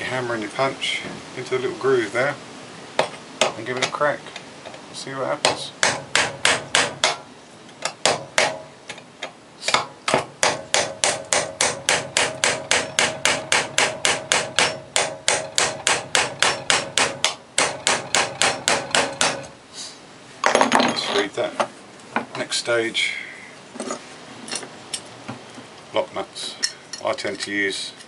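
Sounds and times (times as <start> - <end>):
hammer striking metal punch: 5.4 - 7.2, 7.8 - 8.7, 9.7 - 19.5.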